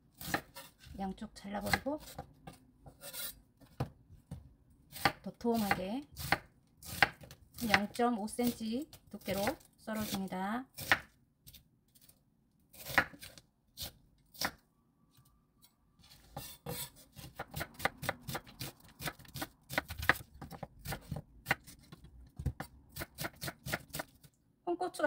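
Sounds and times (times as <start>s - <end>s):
knife slicing onion on board: 0.2s - 1.0s, 1.6s - 3.9s, 4.9s - 11.6s, 12.7s - 14.6s, 16.1s - 24.3s.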